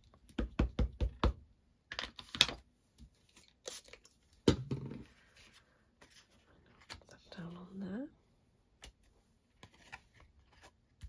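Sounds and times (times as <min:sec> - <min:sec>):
rubbing and handling noises: 0:05.0 - 0:07.2.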